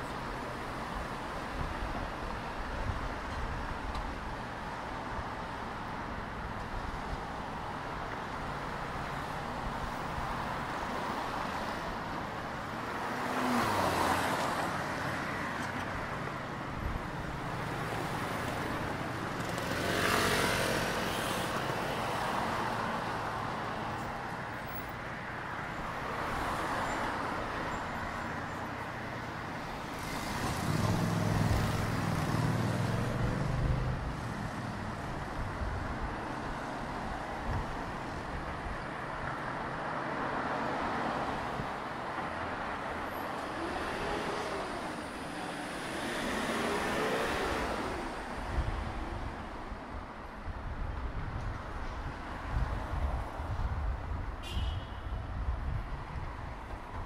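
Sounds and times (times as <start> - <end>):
cars passing: 0.0 - 57.0
steady traffic hum: 0.0 - 57.0.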